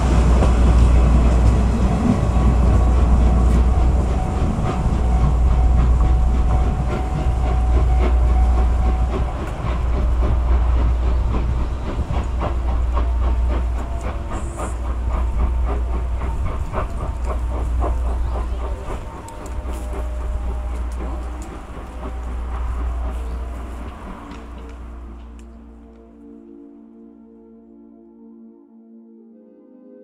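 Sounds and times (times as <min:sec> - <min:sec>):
steam hissing: 0:00.0 - 0:25.6
steam locomotive exhaust chuffs: 0:00.0 - 0:26.0.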